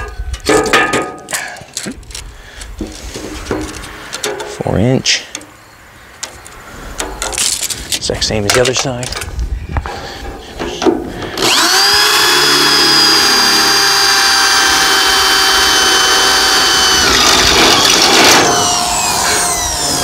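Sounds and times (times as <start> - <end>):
electric drill whining: 11.2 - 20.0.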